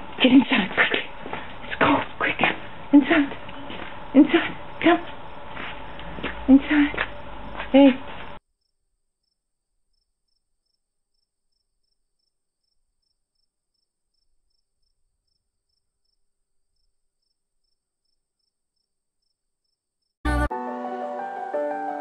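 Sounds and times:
background music: 0:20.3 - 0:22.0.

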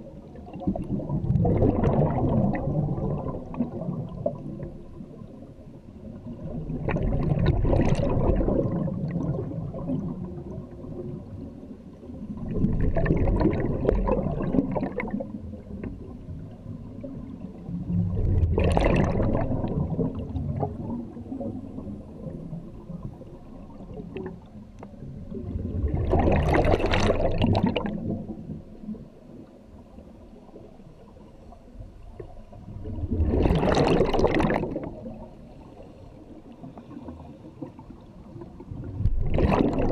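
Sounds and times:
exhaled bubbles rushing: 0:00.0 - 0:05.4, 0:06.0 - 0:39.9
quiet gurgling: 0:00.0 - 0:39.9.

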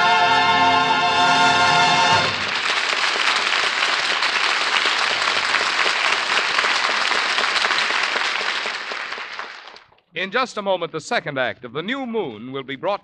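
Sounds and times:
orchestra playing: 0:00.0 - 0:02.7
studio audience applauding: 0:02.1 - 0:10.0.

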